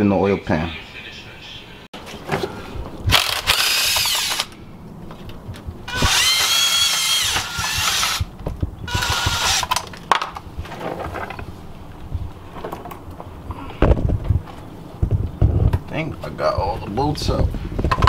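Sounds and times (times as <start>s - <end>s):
cordless power tool whine: 3.1s - 4.6s, 5.9s - 8.3s, 8.9s - 9.9s.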